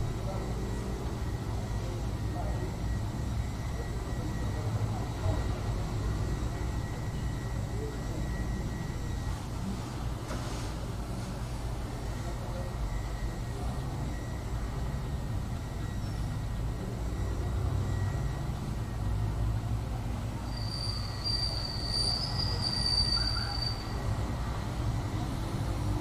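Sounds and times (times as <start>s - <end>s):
high-pitched squeal: 20.4s - 24.2s.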